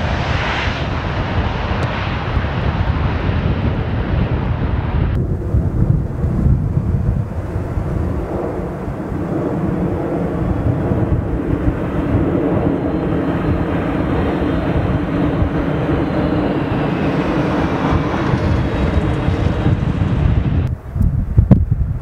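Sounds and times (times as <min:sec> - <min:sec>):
jet engines rumbling and whining: 0:00.0 - 0:22.0.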